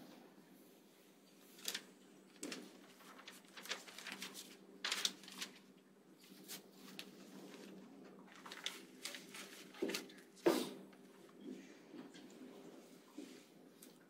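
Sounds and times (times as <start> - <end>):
paper rustling: 1.5 - 10.4.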